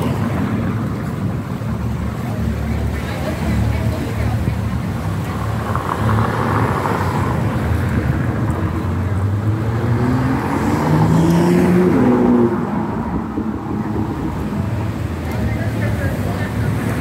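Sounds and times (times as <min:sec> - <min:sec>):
car engine speeding up: 0:05.3 - 0:15.0.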